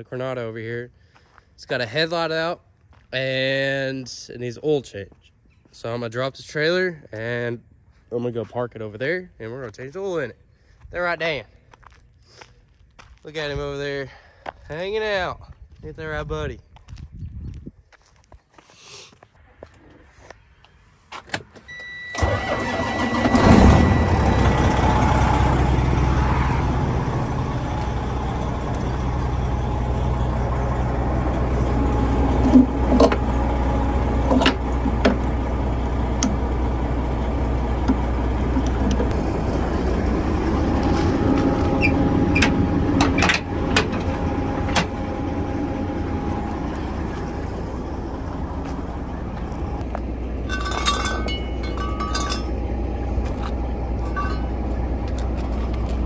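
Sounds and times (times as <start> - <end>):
diesel truck engine idling: 21.8 - 56.0
sharp metallic clanks: 50.4 - 52.6, 54.0 - 54.8.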